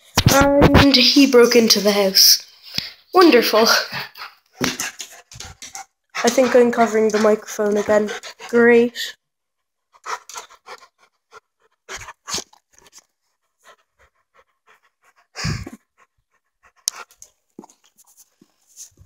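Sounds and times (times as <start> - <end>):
dog panting: 3.3 - 9.1, 9.9 - 18.5.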